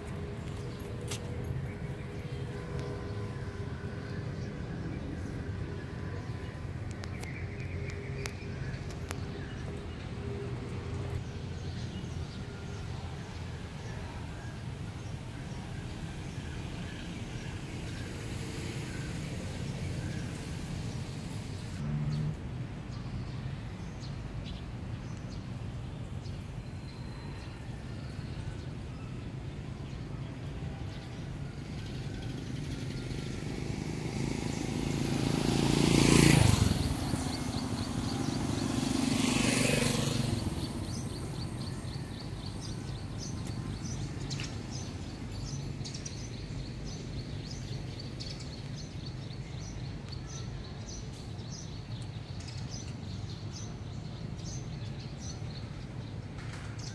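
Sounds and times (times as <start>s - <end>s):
motorbike passing: 16.2s - 22.8s, 30.9s - 49.3s
motor vehicle passing: 17.1s - 22.7s, 31.8s - 46.3s.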